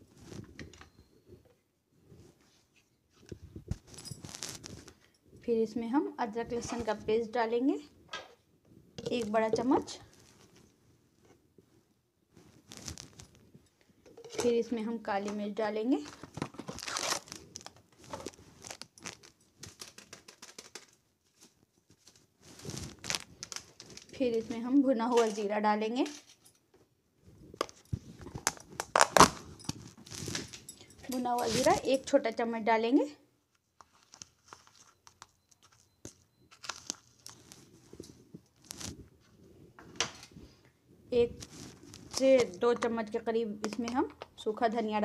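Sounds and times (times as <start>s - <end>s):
plastic packet crinkling: 16.0s - 24.5s, 33.8s - 39.0s.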